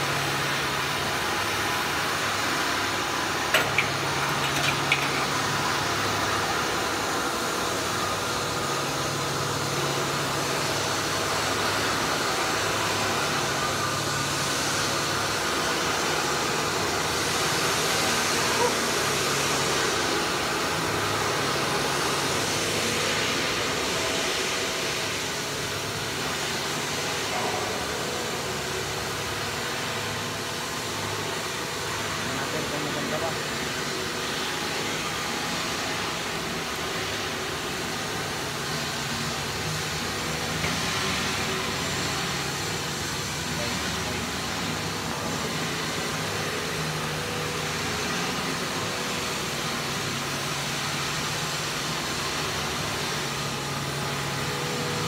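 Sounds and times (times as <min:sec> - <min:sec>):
low machine hum: 0:00.0 - 0:15.7
industrial machinery rushing din: 0:03.4 - 0:05.9.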